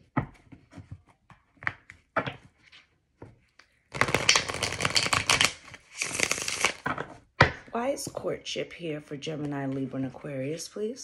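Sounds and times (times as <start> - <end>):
cards shuffling by hand: 0.4 - 7.1
cards tapping and flicking: 3.6 - 7.6.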